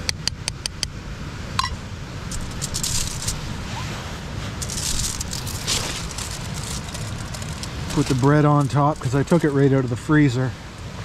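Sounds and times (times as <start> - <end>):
light clicks and rustles: 2.3 - 3.5, 4.6 - 10.1.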